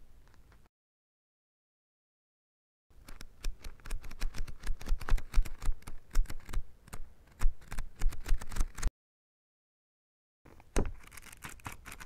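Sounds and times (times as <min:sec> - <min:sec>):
book pages flipping: 0:03.0 - 0:08.9, 0:10.5 - 0:12.0.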